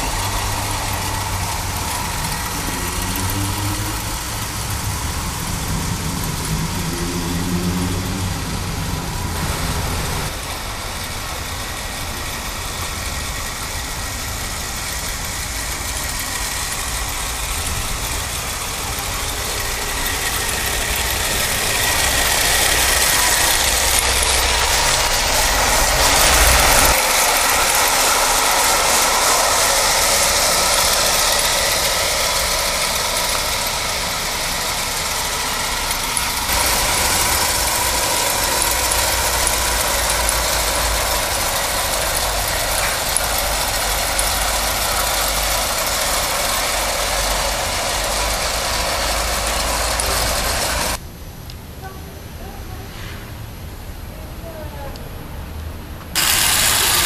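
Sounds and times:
model train motor: 0.0s - 51.0s, 56.1s - 57.0s
model train wheels clattering: 0.0s - 51.0s, 56.1s - 57.0s.

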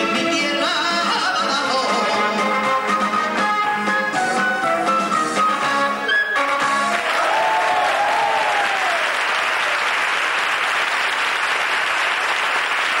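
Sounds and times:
music: 0.0s - 8.2s
audience applauding: 6.4s - 13.0s.

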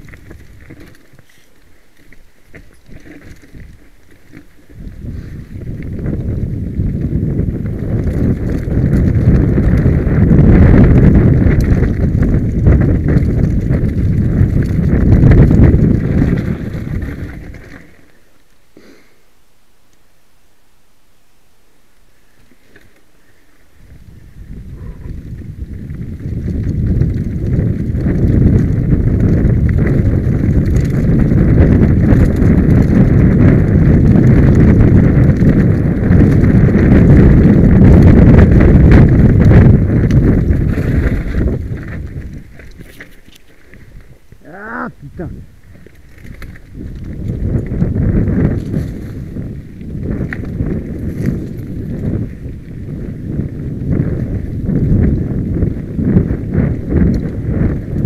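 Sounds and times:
tyres crunching over stones: 0.0s - 10.3s, 11.0s - 18.6s, 38.5s - 52.8s
wind buffeting microphone: 0.0s - 18.2s, 22.2s - 58.0s.

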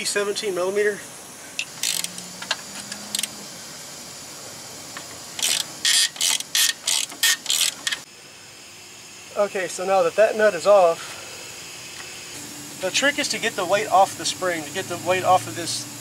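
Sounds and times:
socket ratchet clicking: 1.6s - 3.4s, 5.4s - 8.0s.

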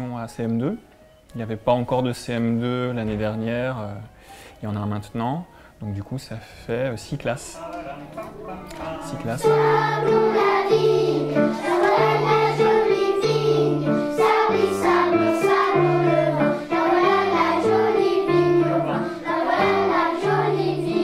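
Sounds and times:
children singing in unison: 8.8s - 21.0s.

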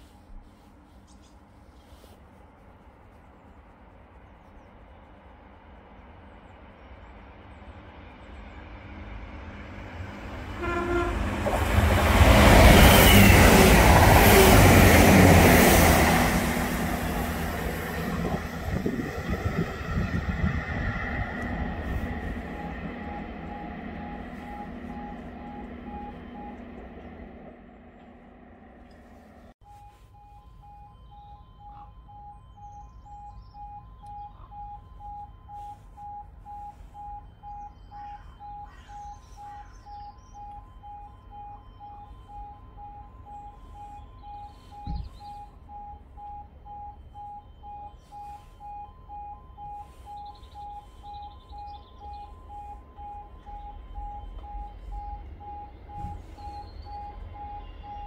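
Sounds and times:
level crossing warning alarm: 0.0s - 0.6s, 9.2s - 58.0s
train rumble: 0.0s - 58.0s
birds chirping: 12.0s - 29.5s, 30.3s - 58.0s
short beeps: 29.6s - 58.0s.

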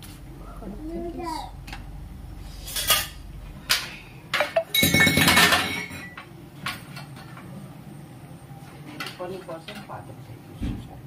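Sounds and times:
dishes and utensils clinking: 3.8s - 7.2s.

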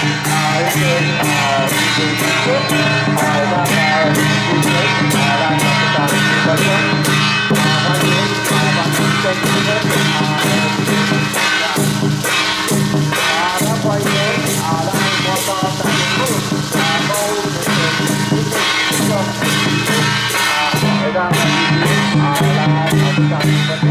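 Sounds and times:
person singing: 0.0s - 6.9s, 7.5s - 23.9s
hand cymbals: 0.0s - 23.9s
drum beat: 7.5s - 23.9s.

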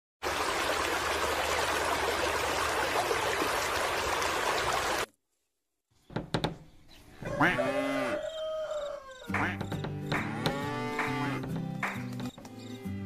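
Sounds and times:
running water flowing: 0.2s - 5.1s.

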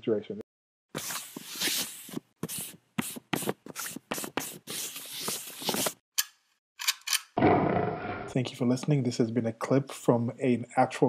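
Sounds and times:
charcoal scraping on paper: 1.0s - 6.0s.

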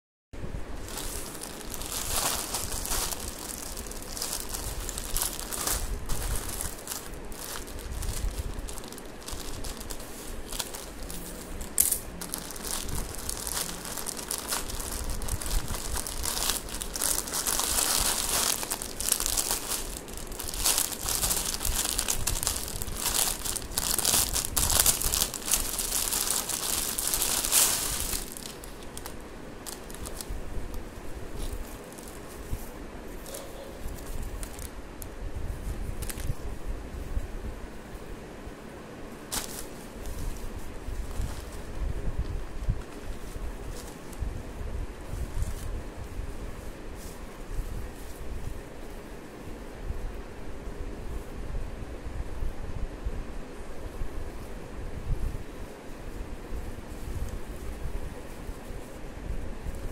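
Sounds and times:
plastic bags crinkling: 0.8s - 32.6s, 33.9s - 35.2s, 36.0s - 36.4s, 39.3s - 41.8s.

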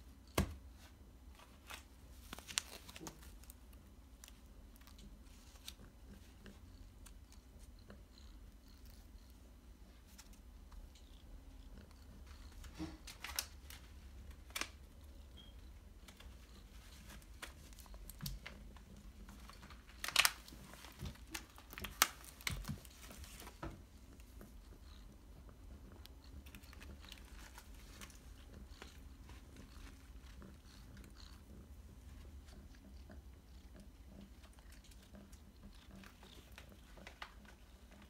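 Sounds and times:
packet crinkling: 1.5s - 3.6s, 12.9s - 14.9s, 16.9s - 23.5s.

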